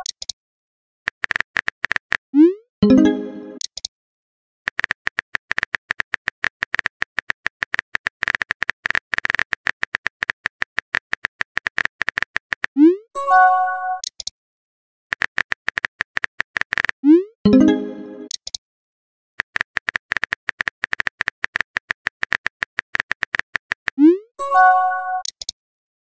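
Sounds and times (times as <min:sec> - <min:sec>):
message sent chime: 0:02.8 - 0:03.6, 0:17.5 - 0:18.3.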